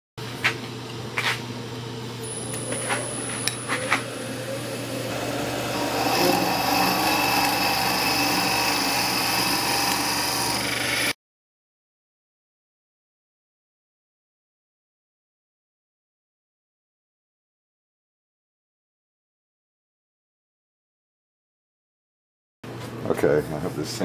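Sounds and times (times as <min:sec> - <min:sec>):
wood lathe humming: 0:02.2 - 0:11.2
tool scraping wood: 0:05.2 - 0:11.1.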